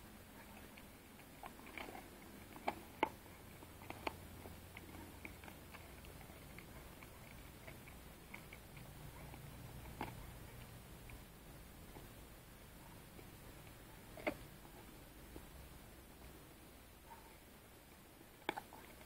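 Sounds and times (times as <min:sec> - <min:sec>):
dog teeth cracking on bone: 0:00.5 - 0:11.3.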